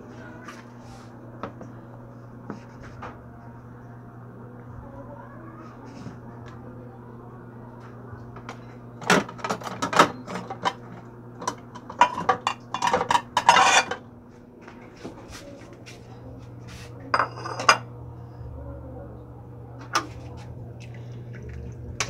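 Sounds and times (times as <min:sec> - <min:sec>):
steady low hum: 0:00.0 - 0:22.0
dishes and cutlery clattering: 0:08.5 - 0:14.1, 0:17.2 - 0:17.9
ceramic plate clink: 0:12.0 - 0:14.0, 0:17.2 - 0:17.9.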